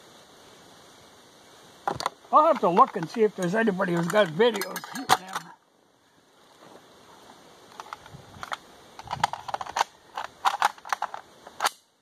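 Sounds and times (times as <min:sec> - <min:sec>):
rifle metal clicks and clacks: 0:02.7 - 0:05.5, 0:07.8 - 0:11.9.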